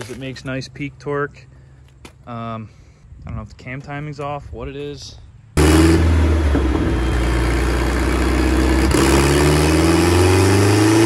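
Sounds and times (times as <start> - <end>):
car engine revving on dyno: 5.6 - 6.7, 7.7 - 11.0.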